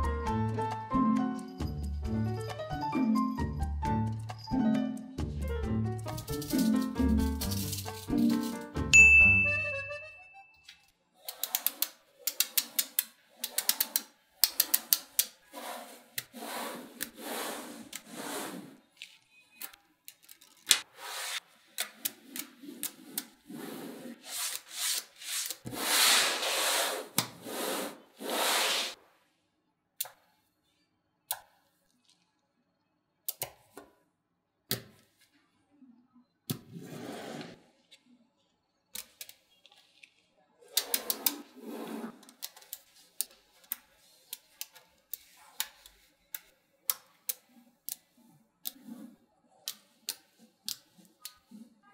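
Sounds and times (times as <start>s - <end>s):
magnetic balls clicking together: 11.3s - 15.4s
balls rolling on a tabletop: 11.3s - 18.9s.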